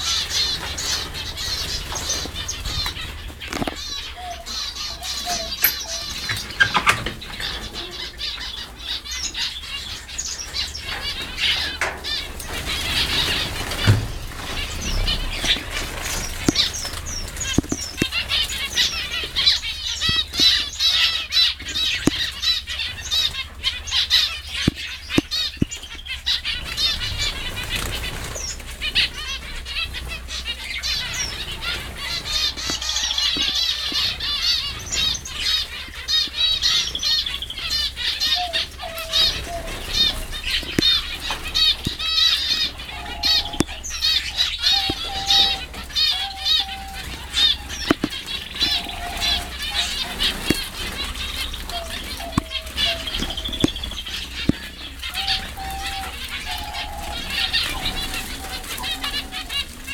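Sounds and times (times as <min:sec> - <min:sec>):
finches chirping: 0:00.0 - 0:59.9
wings fluttering: 0:00.0 - 0:59.9.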